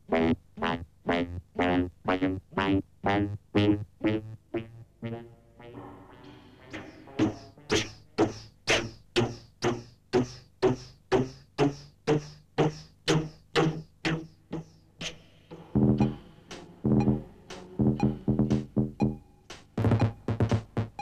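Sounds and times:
synthesized percussive hits: 0:05.7 - 0:07.9, 0:15.0 - 0:21.0.

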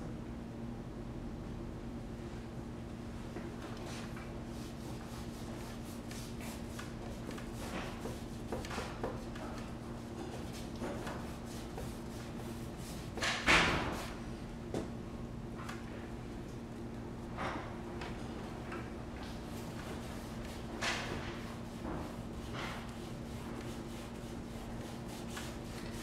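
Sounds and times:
brush scrape: 0:10.2 - 0:13.2, 0:19.7 - 0:26.0.

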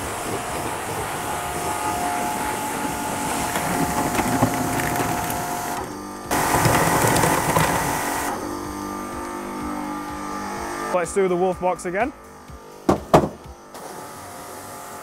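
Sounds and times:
water jet hissing against plastic: 0:00.0 - 0:08.4
pressure washer pump whine: 0:00.0 - 0:15.0.

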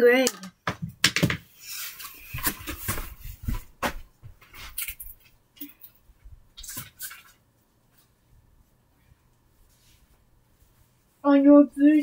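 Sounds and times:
clothing rustle: 0:01.6 - 0:12.0
footsteps on carpet: 0:02.4 - 0:04.5.

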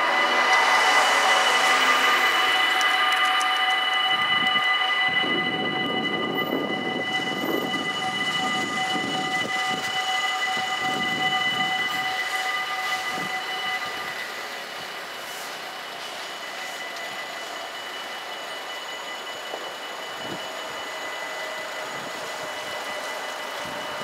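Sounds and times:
level crossing warning bells: 0:00.0 - 0:24.0.

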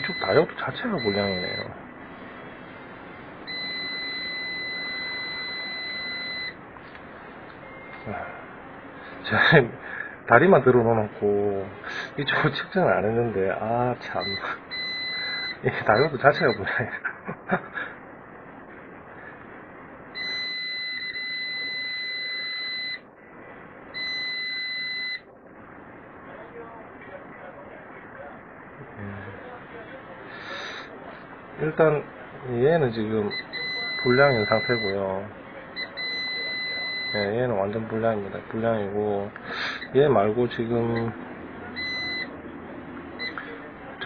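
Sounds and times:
multimeter continuity beep: 0:00.0 - 0:01.8, 0:03.4 - 0:06.6, 0:07.5 - 0:08.3, 0:14.0 - 0:16.8, 0:20.2 - 0:23.0, 0:23.9 - 0:25.3, 0:33.2 - 0:38.6, 0:39.6 - 0:40.0, 0:40.9 - 0:42.4, 0:43.2 - 0:43.6.

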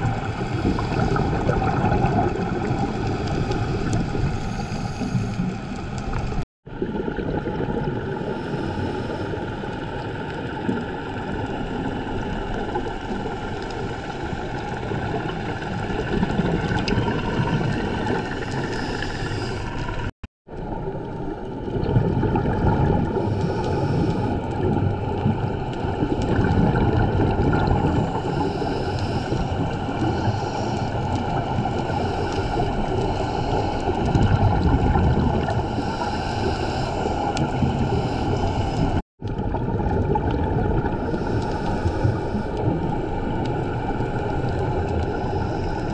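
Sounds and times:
underwater regulator breathing: 0:00.0 - 0:01.8, 0:02.6 - 0:06.2, 0:08.3 - 0:09.7, 0:17.4 - 0:20.1, 0:23.0 - 0:25.3, 0:27.6 - 0:34.6, 0:35.4 - 0:39.0, 0:41.0 - 0:45.9.

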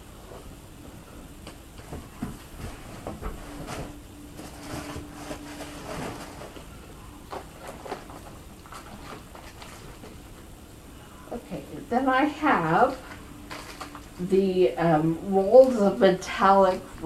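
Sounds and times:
packaging rustling: 0:01.8 - 0:10.2, 0:12.8 - 0:14.2.

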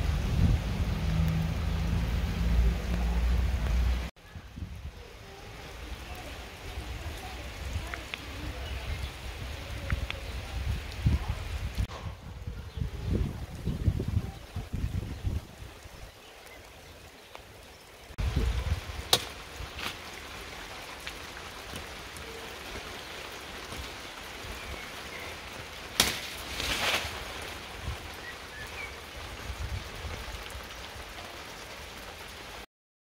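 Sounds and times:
rustle of leaves: 0:00.0 - 0:32.7
steady rain-like hiss: 0:00.0 - 0:32.7
knife hitting branches: 0:19.1 - 0:20.0, 0:26.0 - 0:27.2.

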